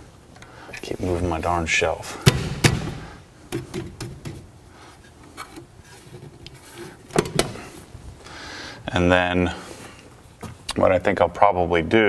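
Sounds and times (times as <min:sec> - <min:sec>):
metal shelf knocks: 0:02.3 - 0:04.4.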